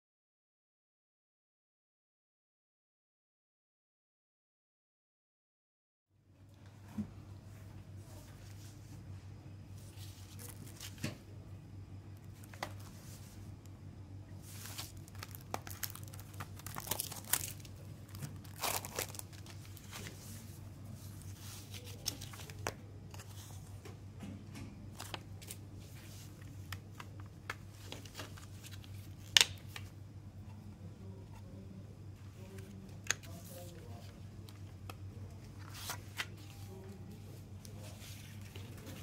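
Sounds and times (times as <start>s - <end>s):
shrink-wrap crinkling and tearing: 14.5s - 20.2s.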